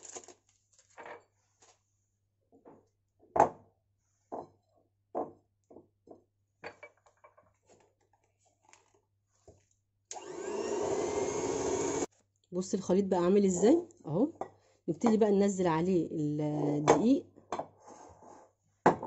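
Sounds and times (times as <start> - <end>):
electric hand mixer running: 10.1 - 12.1.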